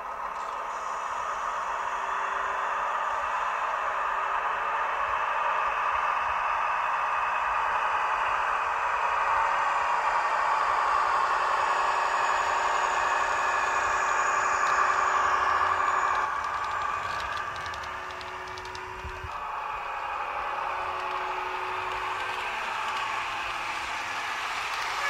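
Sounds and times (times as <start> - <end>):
model diesel engine hum: 0.0 - 25.0.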